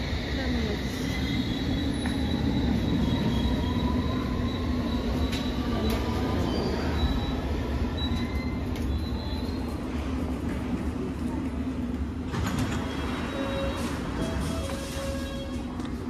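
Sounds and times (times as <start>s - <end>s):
train rumbling to a stop: 0.0s - 16.0s
wheels squealing: 0.9s - 10.0s, 12.6s - 15.7s.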